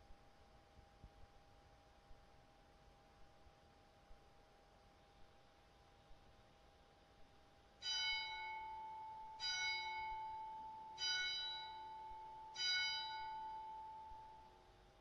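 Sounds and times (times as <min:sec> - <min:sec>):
church bell striking: 0:07.8 - 0:14.5.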